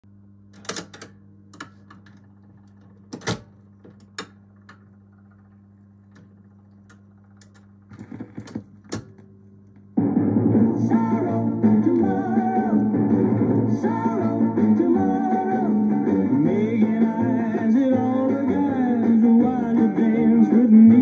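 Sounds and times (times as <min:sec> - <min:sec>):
steady low hum: 0:00.0 - 0:21.0
record changer clicks and clunks: 0:00.5 - 0:09.8
pop song with guitar and singing: 0:10.1 - 0:21.0.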